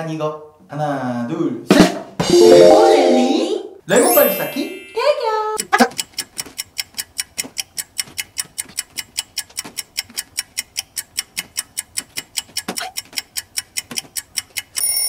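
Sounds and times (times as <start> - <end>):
fast clock ticking: 5.6 - 14.8.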